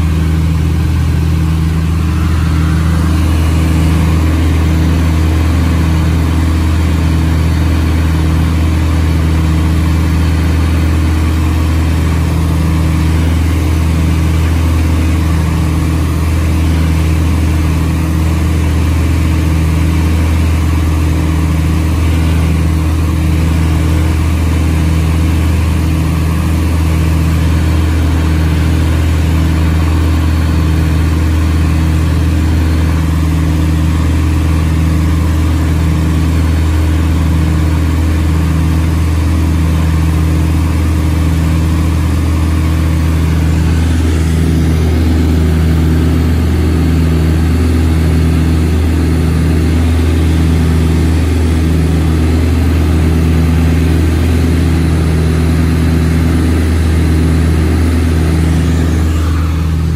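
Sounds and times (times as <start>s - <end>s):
propeller engines droning: 0.0s - 59.9s.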